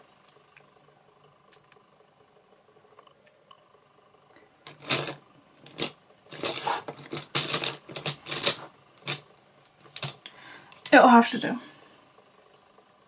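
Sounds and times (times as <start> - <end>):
makeup brushes clattering: 4.7 - 9.2, 9.9 - 10.2.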